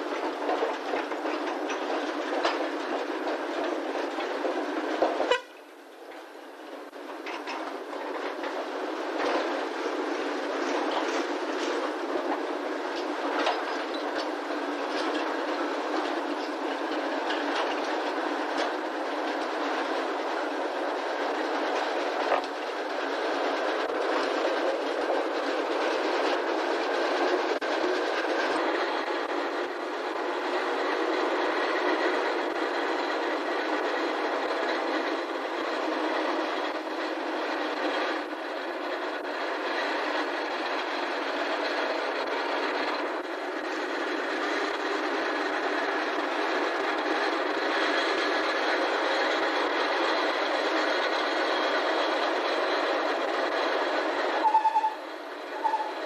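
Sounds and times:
wagon wheels clattering over rails: 0.0s - 5.4s, 7.2s - 55.0s
diesel locomotive: 0.0s - 56.0s.

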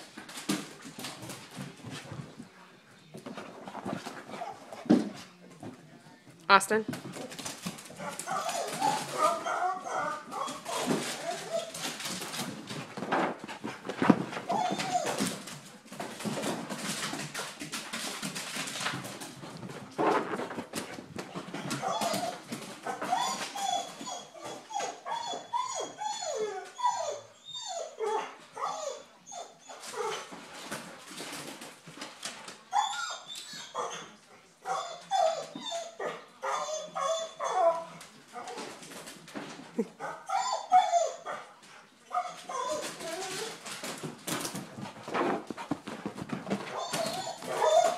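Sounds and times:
dogs scrabbling and knocking: 0.0s - 5.8s, 6.9s - 25.4s, 29.8s - 33.7s, 37.7s - 40.0s, 42.2s - 47.9s
dog whining yips: 8.2s - 11.8s, 14.5s - 15.2s, 21.6s - 30.1s, 32.7s - 34.0s, 34.7s - 37.8s, 40.1s - 41.3s, 42.2s - 43.5s, 46.7s - 47.9s.

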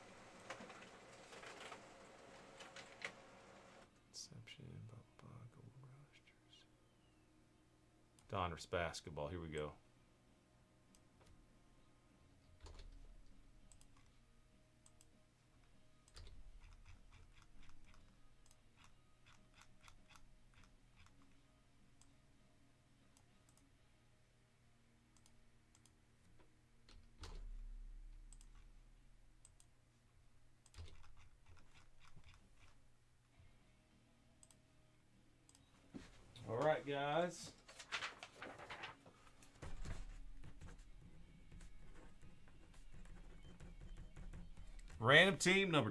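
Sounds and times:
low room hum: 0.0s - 45.9s
keyboard and mouse clicking: 13.7s - 14.1s, 16.1s - 21.3s, 28.3s - 28.7s, 30.6s - 32.8s.

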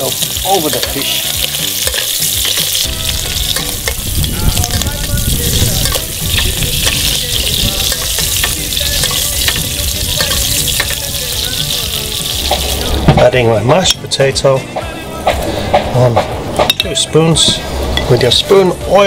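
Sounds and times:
fish sizzling in oil: 0.0s - 13.1s
low rumble: 2.9s - 13.4s.

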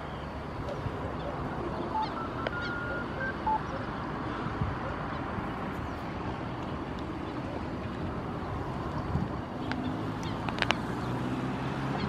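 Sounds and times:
rushing airport background noise: 0.0s - 9.8s
short beeps: 1.8s - 3.9s.

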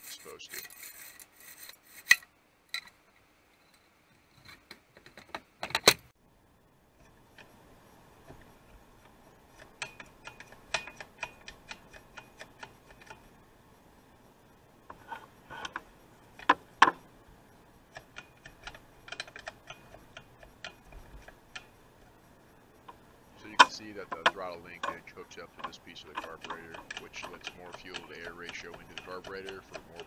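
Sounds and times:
small metal parts clicking: 17.9s - 21.7s, 23.4s - 30.0s.

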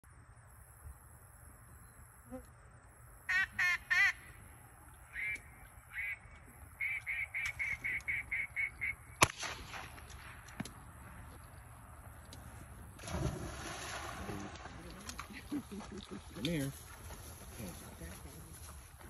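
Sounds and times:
duck call quacks: 3.3s - 4.3s, 5.1s - 6.2s, 6.8s - 9.0s
gunshot: 9.2s - 10.0s.

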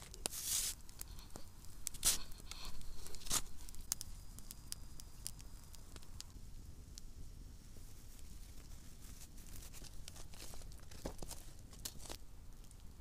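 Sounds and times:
rustling crunches: 0.0s - 4.0s, 7.9s - 12.2s
campfire crackling and popping: 0.0s - 13.0s.

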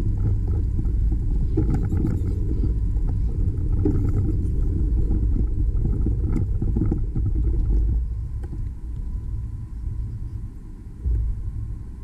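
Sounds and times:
wind buffeting microphone: 0.0s - 12.0s
light clicks and rattles: 0.1s - 9.1s.

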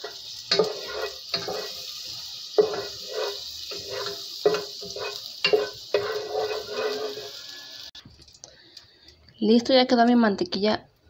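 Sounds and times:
butter sizzling in a pot: 0.0s - 8.0s
wooden spoon scraping a pot: 2.6s - 7.4s.

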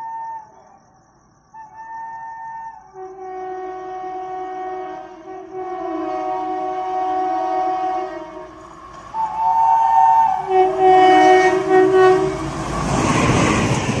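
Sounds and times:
train horn blasts: 2.9s - 12.6s.

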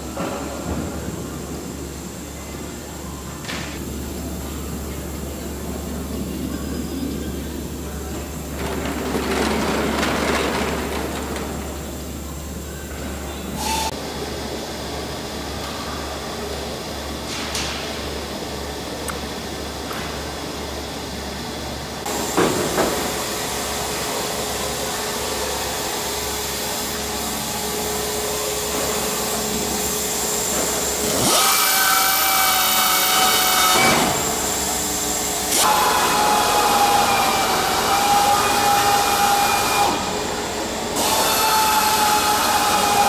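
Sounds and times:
pneumatic drill whine: 7.8s - 14.1s, 22.0s - 43.0s.

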